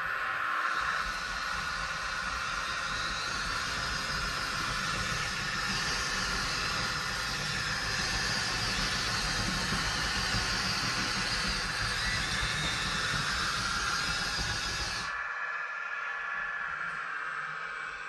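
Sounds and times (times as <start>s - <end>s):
toy excavator whirring hiss: 0.0s - 15.2s.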